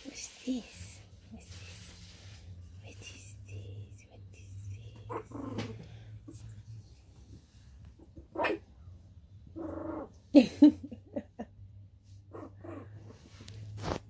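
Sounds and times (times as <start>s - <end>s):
puppy growling: 5.0s - 6.4s, 9.4s - 10.2s
puppy barking: 8.3s - 8.7s.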